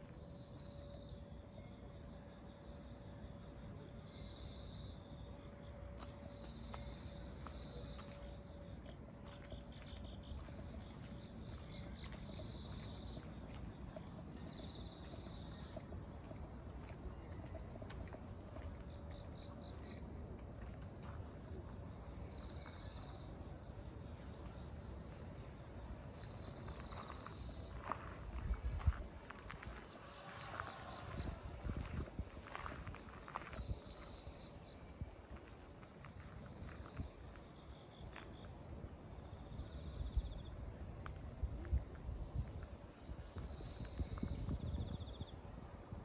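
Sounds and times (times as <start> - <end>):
insects chirping: 0.0 - 46.0
footsteps on gravel: 9.2 - 13.8.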